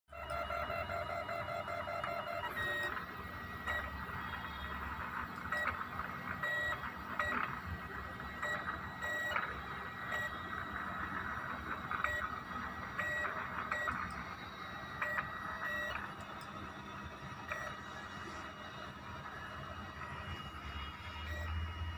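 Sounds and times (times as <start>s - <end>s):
stepper motors whining: 0.1s - 21.9s.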